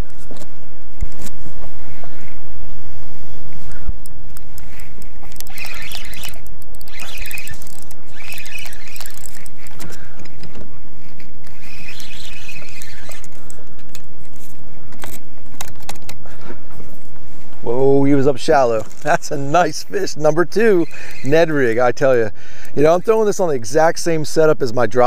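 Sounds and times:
sharp clicks: 3.9s - 16.2s.

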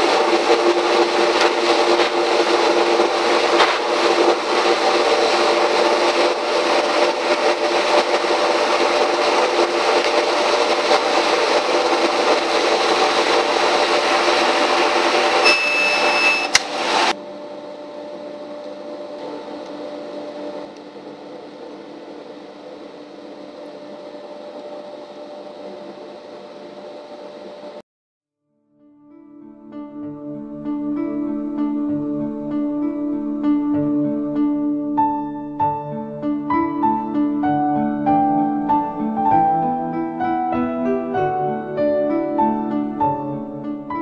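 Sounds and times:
laser cutter fans whirring: 0.0s - 27.8s
high beep: 15.4s - 16.6s.

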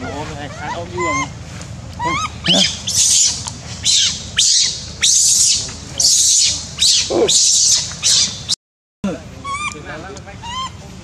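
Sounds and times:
monkey screaming: 0.0s - 1.4s, 2.0s - 8.6s, 9.4s - 9.8s, 10.4s - 10.8s.

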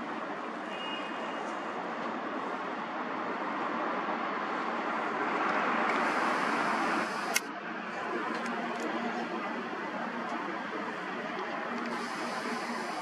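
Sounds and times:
distant city traffic: 0.0s - 13.0s
sharp click: 7.3s - 7.5s.

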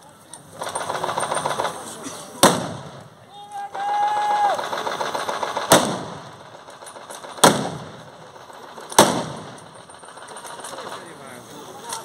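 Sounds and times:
rifle shots with echo: 2.4s - 3.0s, 4.6s - 8.2s, 8.8s - 9.8s.

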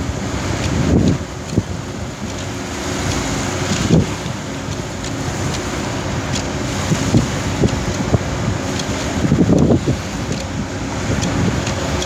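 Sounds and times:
choppy sea rushing: 0.0s - 12.0s
wind buffeting microphone: 0.0s - 12.0s.

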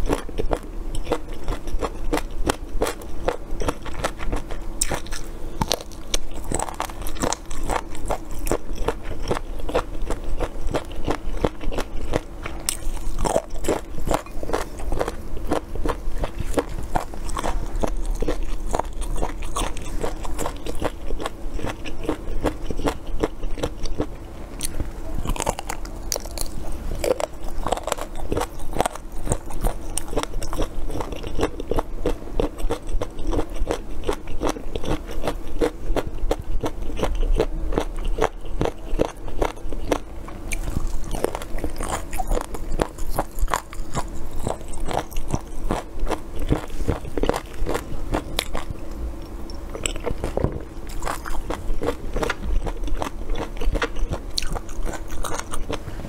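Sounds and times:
crunchy chewing of fried food: 0.0s - 56.0s
faint steady hum: 0.0s - 56.0s.

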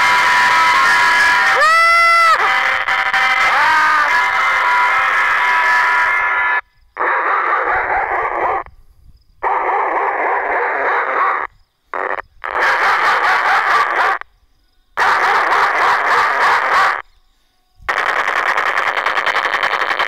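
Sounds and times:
recorded machine-gun fire: 17.9s - 20.0s.

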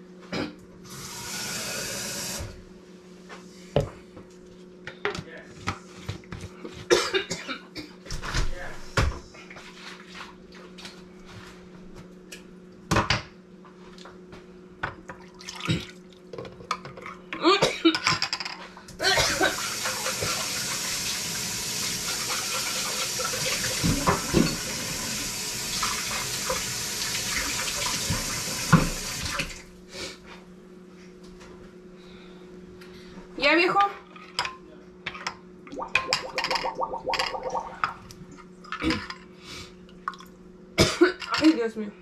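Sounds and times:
kitchen tap running: 0.9s - 2.6s, 19.2s - 29.7s, 35.7s - 38.0s.

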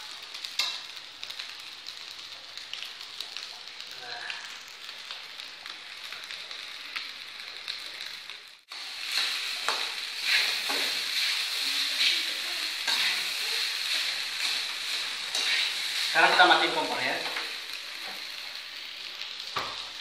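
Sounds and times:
rice sizzling in a wok: 0.0s - 20.0s
spatula scraping a pan: 9.0s - 16.1s.

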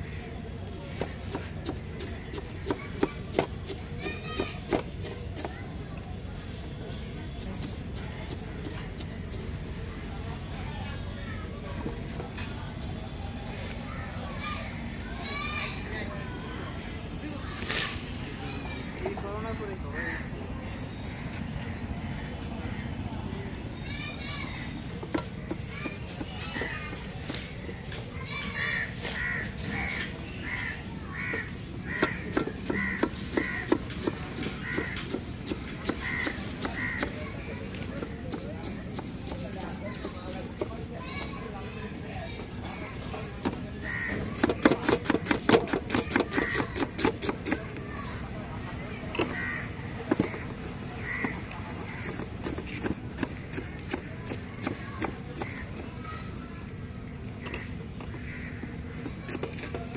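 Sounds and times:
crow cawing: 28.6s - 33.8s, 34.6s - 35.0s, 35.9s - 37.2s, 43.8s - 44.4s, 46.3s - 46.9s, 49.2s - 52.3s, 57.4s - 58.7s
knife chopping on wooden board: 44.4s - 47.6s, 52.0s - 55.6s.

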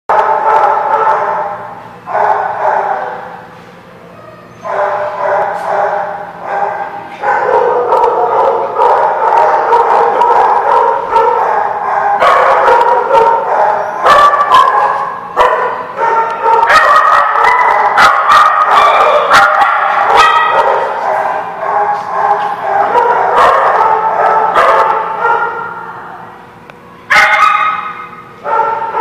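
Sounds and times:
small dogs barking and yipping: 4.6s - 25.8s, 27.1s - 29.0s.

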